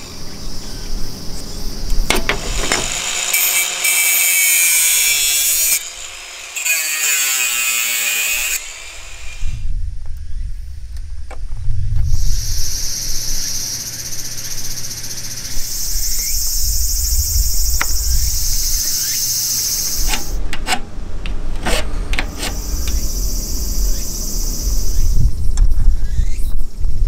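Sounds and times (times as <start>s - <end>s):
insects buzzing: 11.6s - 26.5s.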